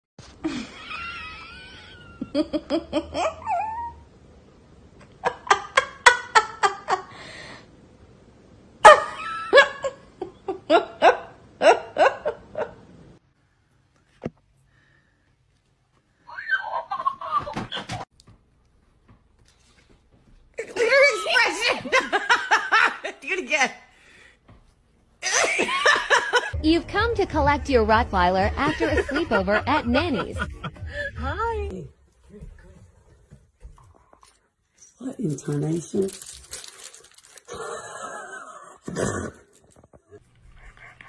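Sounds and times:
hearty laughter: 28.6 - 31.3.

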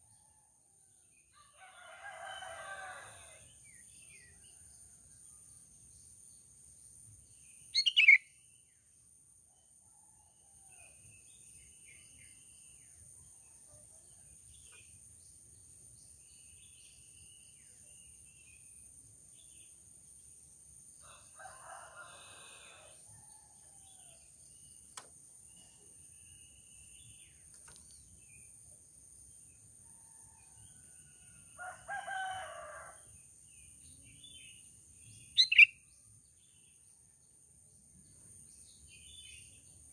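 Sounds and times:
rooster crowing: 1.4 - 3.4, 21.0 - 23.2, 31.6 - 33.0
faint bird chirps: 7.5 - 8.5, 35.3 - 35.9.

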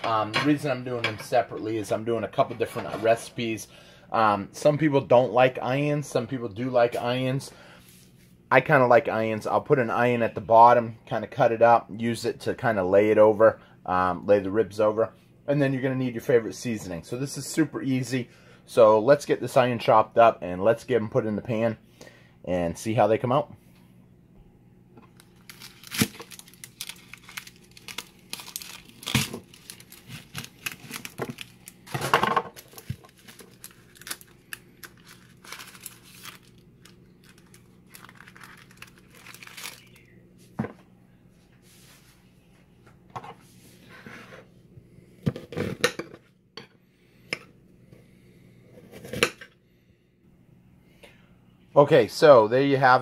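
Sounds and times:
onion skin crinkling and tearing: 25.1 - 40.2.

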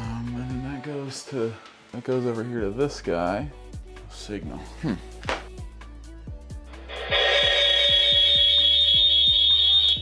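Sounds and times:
background music with steady beat: 0.0 - 10.0
high-pitched feedback squeal: 6.9 - 10.0.

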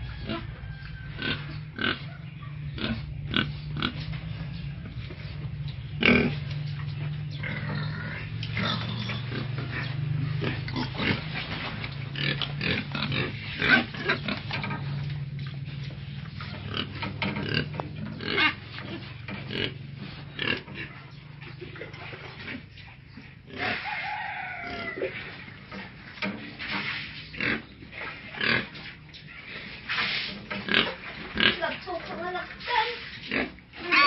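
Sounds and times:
steady low hum: 0.0 - 24.0
pigs grunting and squealing: 0.0 - 34.0.

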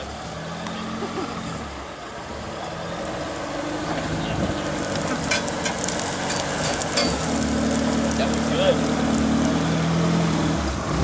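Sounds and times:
truck engine running low: 0.0 - 11.0
vehicle pushing through grass: 0.0 - 11.0
stems crackling and snapping: 3.3 - 10.0.

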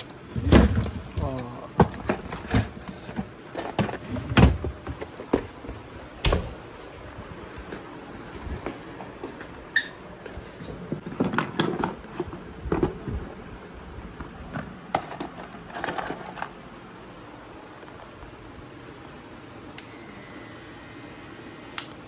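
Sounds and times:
cardboard packaging clicks and rustles: 14.2 - 16.7.

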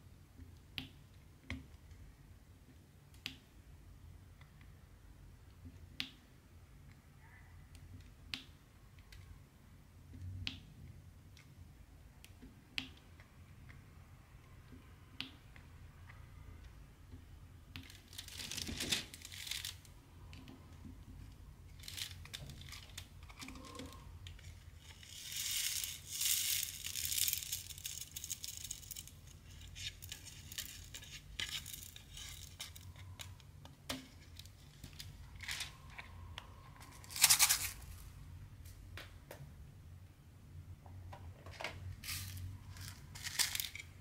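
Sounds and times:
plastic beads rattling: 17.8 - 19.9, 21.2 - 36.0, 36.8 - 38.1, 42.0 - 44.0
thin plastic crinkling: 17.8 - 20.5, 21.2 - 36.2, 36.8 - 38.1, 41.9 - 44.0.

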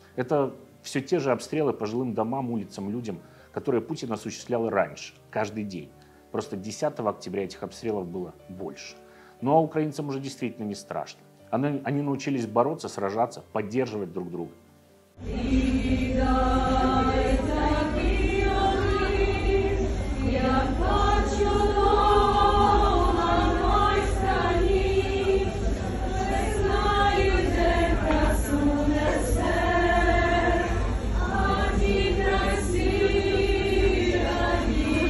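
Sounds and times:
crowd singing in unison: 15.2 - 35.0.

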